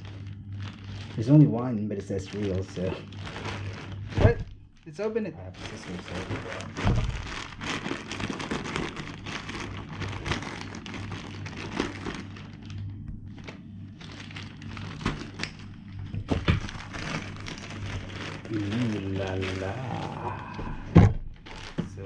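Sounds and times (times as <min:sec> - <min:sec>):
packaging crinkling and rustling: 0:00.0 - 0:22.0
scissors cutting packaging: 0:02.0 - 0:03.6, 0:16.8 - 0:19.9.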